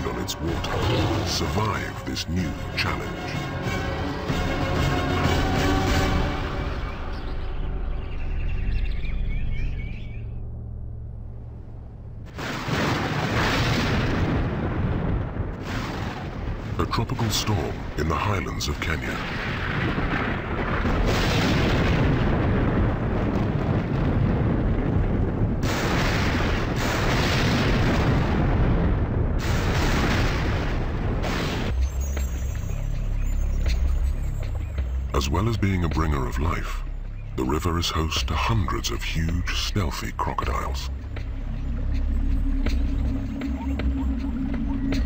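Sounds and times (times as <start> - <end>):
low steady drone: 0.0 - 12.4, 19.4 - 45.0
thunderclap rumbling: 11.2 - 37.0.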